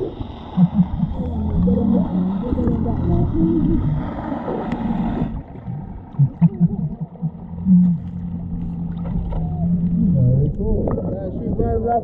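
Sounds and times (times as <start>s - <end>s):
wavering voice-like tones: 0.0s - 5.3s
underwater water sloshing and gurgling: 0.0s - 12.0s.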